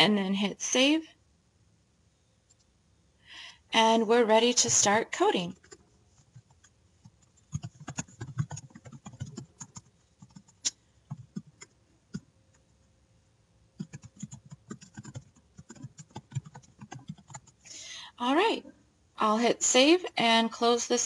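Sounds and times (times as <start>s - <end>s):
computer keyboard typing: 5.5s - 12.3s, 13.8s - 17.7s.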